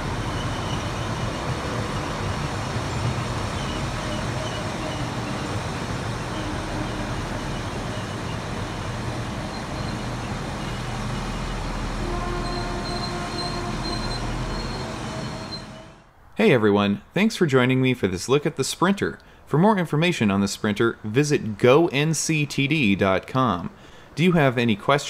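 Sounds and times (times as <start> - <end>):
train wheels on rails: 0.0 - 16.0
train engine rumble: 0.0 - 16.1.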